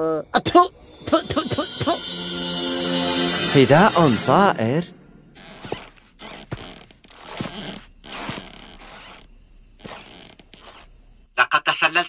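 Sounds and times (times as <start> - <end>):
cartoon tiptoe footsteps: 5.4 - 9.2.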